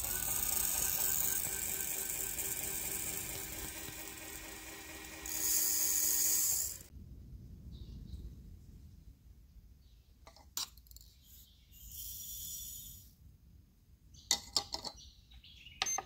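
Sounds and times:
dispenser motor whirring: 0.0s - 6.9s
powder pouring through funnel: 0.0s - 6.9s.

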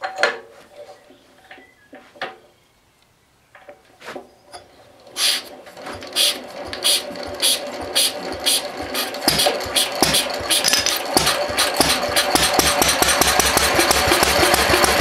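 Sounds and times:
stationary engine rhythmic clatter: 5.8s - 15.0s
engine hand-cranking knocks: 6.7s - 15.0s.

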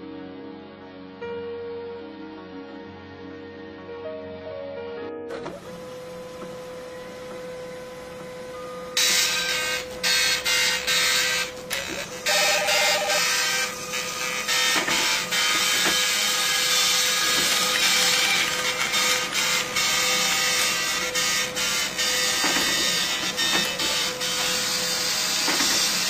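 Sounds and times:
printing machine running: 5.3s - 26.0s
short tone: 12.2s - 13.8s.

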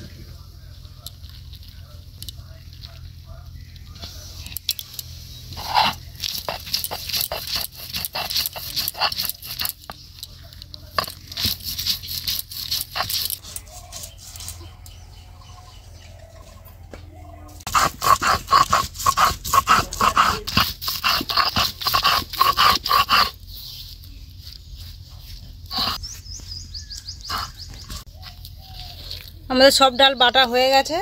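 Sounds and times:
stone rolling on stone grinding slab: 5.6s - 13.5s.

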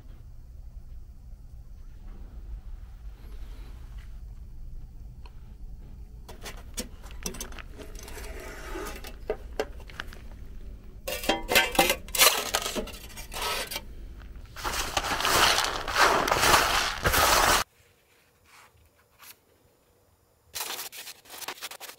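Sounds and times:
scrapes: 6.3s - 10.3s, 11.1s - 19.4s
wood pellets clattering: 14.5s - 17.6s
hand brush sweeping: 14.5s - 17.7s.

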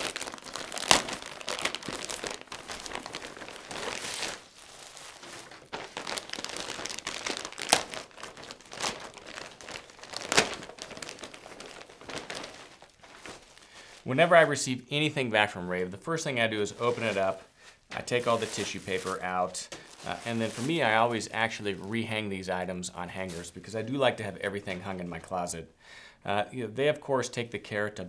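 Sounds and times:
plastic bags crinkling: 0.0s - 14.5s, 16.6s - 22.2s.

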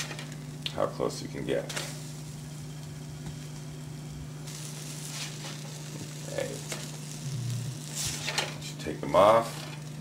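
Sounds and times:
pancake batter sizzling on griddle: 0.0s - 0.8s, 1.4s - 10.0s
low hum: 2.0s - 8.2s.

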